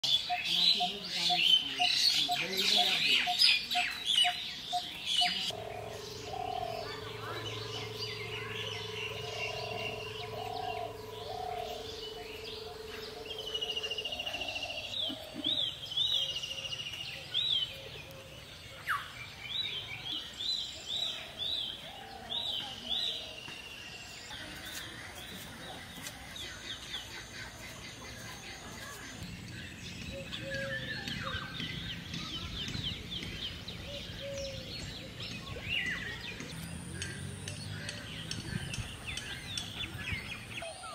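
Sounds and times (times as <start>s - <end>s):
birds chirping and calling: 0.0s - 40.9s
steady low hum: 5.0s - 16.2s.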